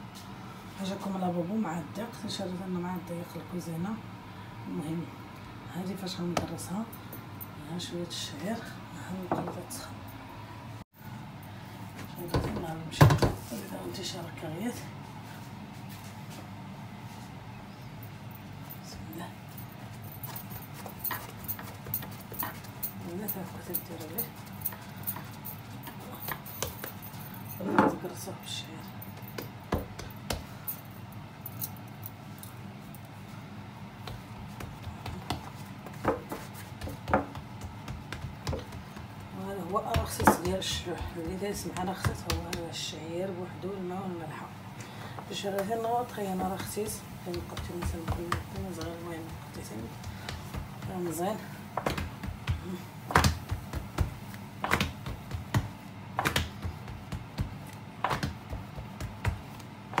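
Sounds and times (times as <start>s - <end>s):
hands patting dough on wooden board: 20.7s - 27.2s, 29.1s - 30.6s, 34.0s - 42.8s, 46.4s - 60.0s.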